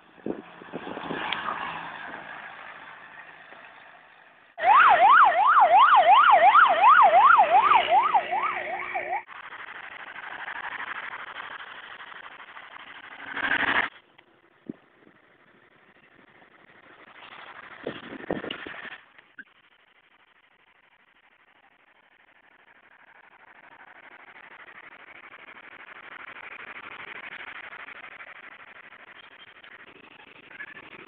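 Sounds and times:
road traffic noise: 0.0 - 31.0
police siren yelping: 4.6 - 9.3.

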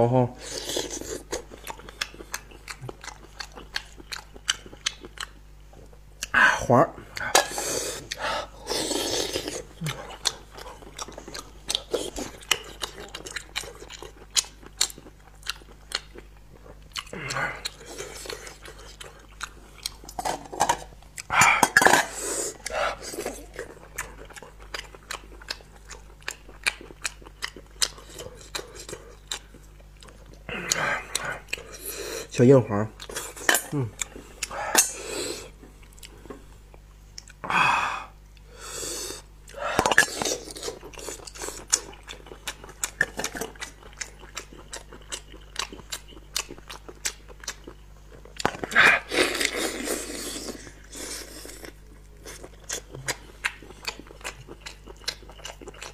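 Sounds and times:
person slurping: 0.4 - 1.4, 6.2 - 10.7, 21.2 - 23.6, 33.2 - 35.6, 48.6 - 51.8
man chewing with mouth clicks: 0.4 - 6.4, 7.0 - 32.4, 33.0 - 55.9.

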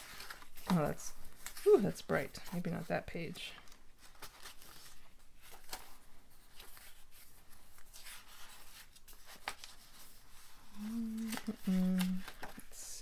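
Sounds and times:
paper pages rustling: 0.0 - 12.8.

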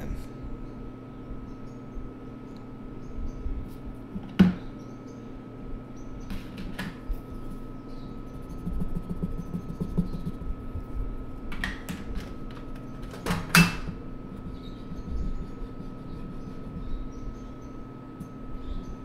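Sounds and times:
faint steady hum: 0.0 - 19.0
art stick scribbling on paper: 8.3 - 10.5, 14.4 - 17.2.

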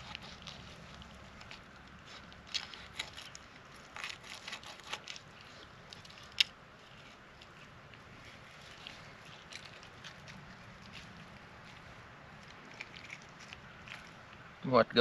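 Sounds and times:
knife scraping fish: 0.0 - 11.8.

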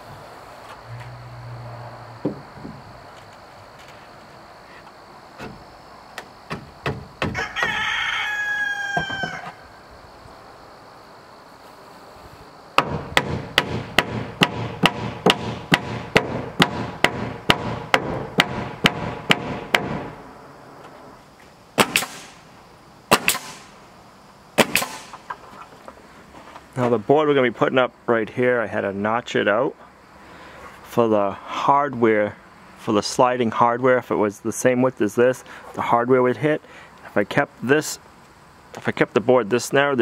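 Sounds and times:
single knocks: 2.1 - 3.9, 6.2 - 7.8
rooster crowing: 7.3 - 9.9
hammer driving nails: 12.8 - 20.1, 21.8 - 22.3, 23.1 - 23.7.

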